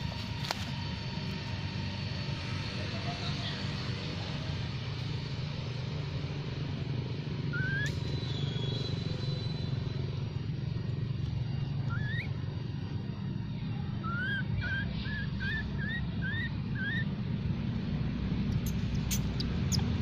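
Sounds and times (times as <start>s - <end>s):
monkey squeaks: 18.6s - 20.0s.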